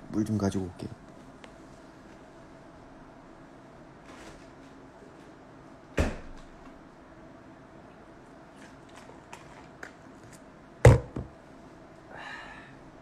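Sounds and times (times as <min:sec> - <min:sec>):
loud thump: 0:06.0 - 0:06.3.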